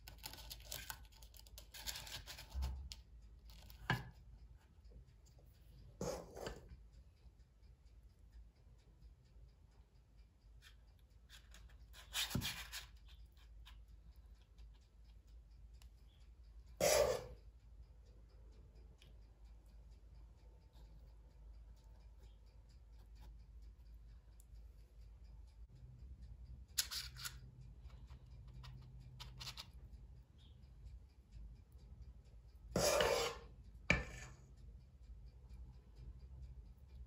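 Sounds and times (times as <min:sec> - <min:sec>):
spoon scraping and tapping: 0:00.1 - 0:02.7, 0:03.5 - 0:04.2, 0:06.0 - 0:06.7, 0:11.3 - 0:13.8, 0:26.8 - 0:27.4, 0:28.0 - 0:29.8, 0:32.7 - 0:34.6.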